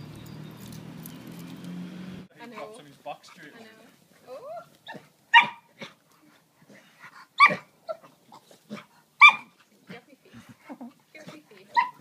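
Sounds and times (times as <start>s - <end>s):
dog barking sharply: 5.3s - 5.7s, 9.2s - 9.5s.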